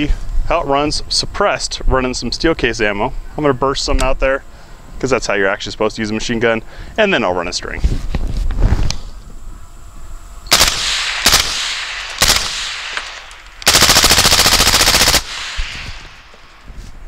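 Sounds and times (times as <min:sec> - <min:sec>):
suppressed machine gun bursts: 0:10.5 - 0:16.8.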